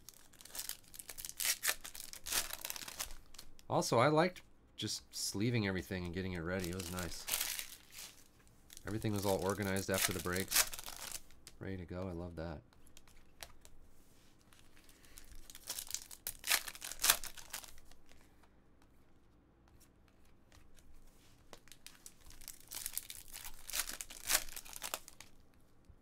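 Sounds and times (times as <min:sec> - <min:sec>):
foil wrapper crinkling and tearing: 0:00.0 - 0:03.7, 0:06.5 - 0:11.5, 0:14.9 - 0:18.0, 0:21.7 - 0:25.4.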